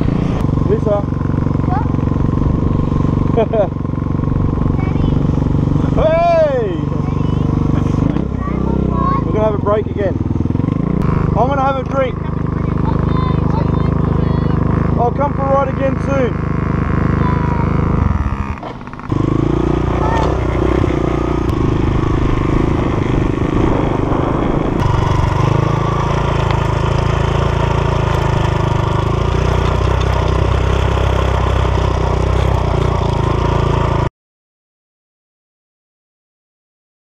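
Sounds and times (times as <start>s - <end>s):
dirt bike engine running: 0.0s - 34.1s.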